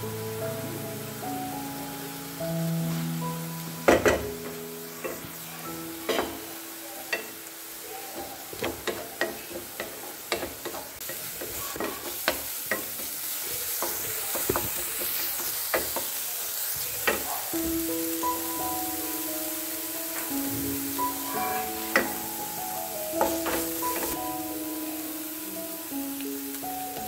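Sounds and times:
onion sizzling in oil: 0.0s - 27.0s
spatula knocking against pan: 8.2s - 13.1s.

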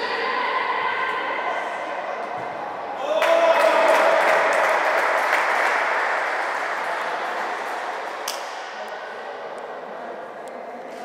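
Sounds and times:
crowd cheering and clapping: 3.0s - 8.8s.

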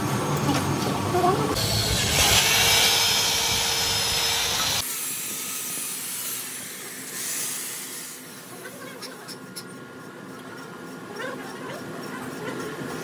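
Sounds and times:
electric drill whining: 1.6s - 4.9s.

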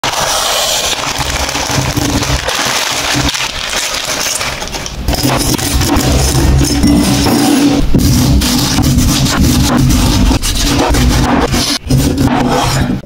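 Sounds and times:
dry noodle block crackling: 0.0s - 5.0s
plastic wrapper crinkling: 0.0s - 6.2s.

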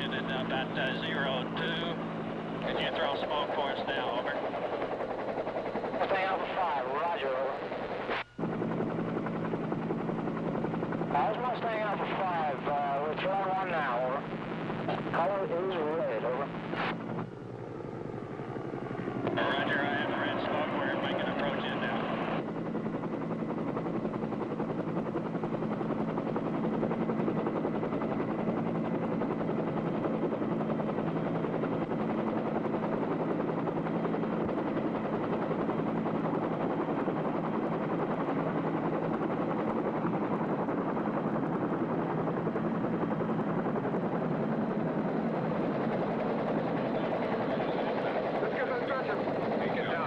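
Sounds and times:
helicopter rotor drone: 0.0s - 50.0s.

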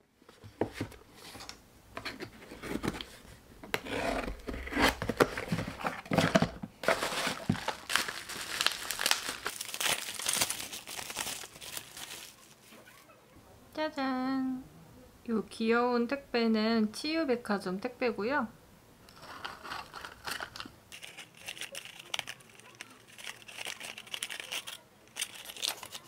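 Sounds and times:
tape tearing and crackling: 4.3s - 12.9s, 19.1s - 26.0s
cardboard flaps rustling: 4.4s - 9.5s
bubble-wrap bag crinkling: 6.2s - 12.9s, 19.1s - 26.0s.

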